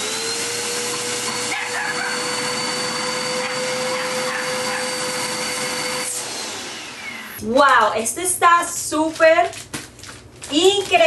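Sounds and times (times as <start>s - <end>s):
vacuum pump whining: 0.0s - 8.0s.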